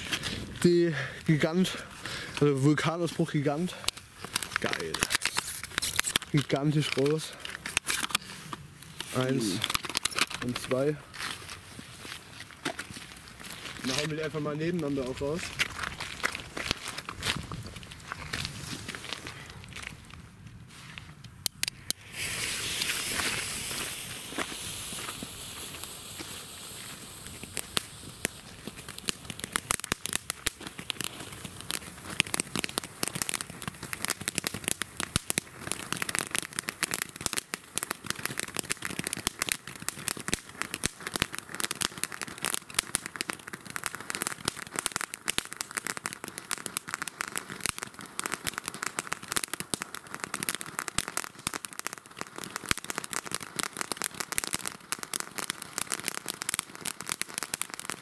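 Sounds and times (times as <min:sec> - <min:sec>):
firework fountains hissing: 0:00.0 - 0:12.1, 0:21.6 - 0:51.6
firework crackling: 0:00.0 - 0:58.0.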